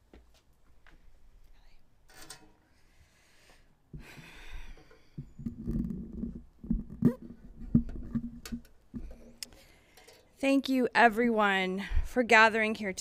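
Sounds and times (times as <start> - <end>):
microphone handling rustle: 5.2 - 9.3.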